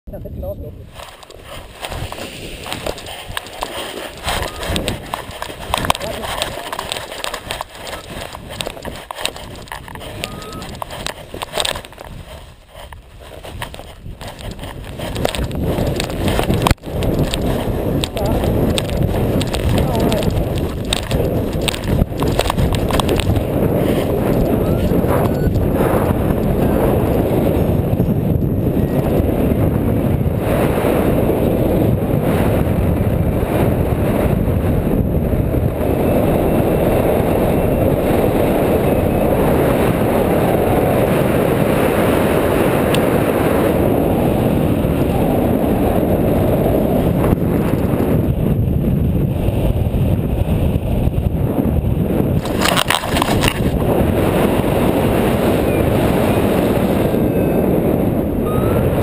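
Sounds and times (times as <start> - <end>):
wind rushing over microphone: 0.1 - 59.0
short clatter: 52.4 - 53.7.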